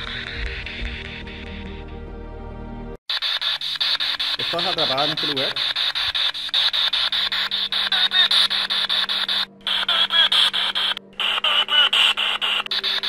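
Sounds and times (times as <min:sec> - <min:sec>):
choppy radio static pulses: 0:03.1 - 0:13.0
snatches of broadcast voice: 0:03.1 - 0:13.0.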